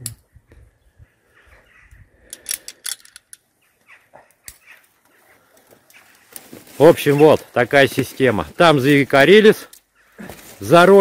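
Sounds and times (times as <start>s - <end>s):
metallic clicks of climbing hardware: 2.2s - 3.5s.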